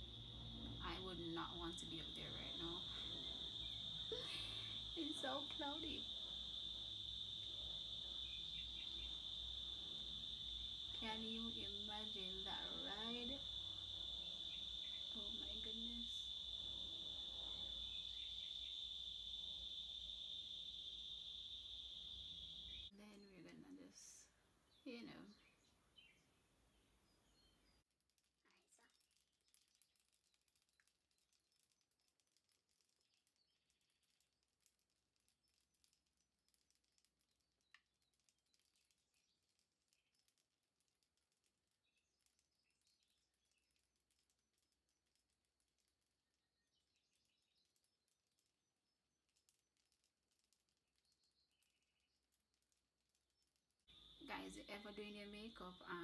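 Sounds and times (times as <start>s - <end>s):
shrill insect chorus: 0.0s - 22.9s, 53.9s - 56.0s
faint chirp: 0.0s - 27.8s, 53.9s - 56.0s.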